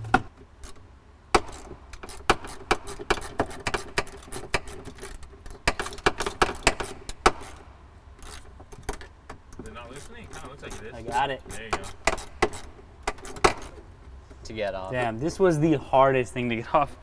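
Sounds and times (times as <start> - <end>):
sharp plastic clicks and knocks: 0.0 - 9.7.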